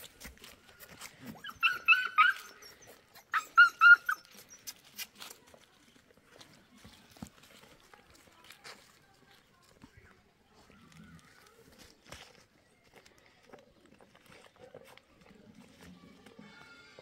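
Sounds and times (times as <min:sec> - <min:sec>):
puppy yapping: 0:01.4 - 0:04.5.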